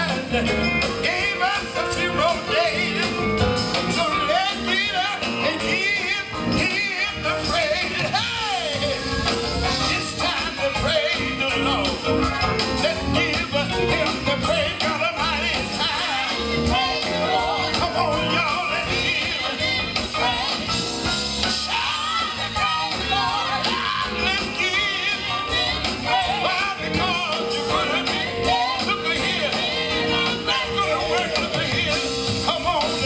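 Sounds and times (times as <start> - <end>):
band playing gospel music: 0.0 - 33.0
women's vocal group singing: 15.6 - 20.9, 21.6 - 32.0.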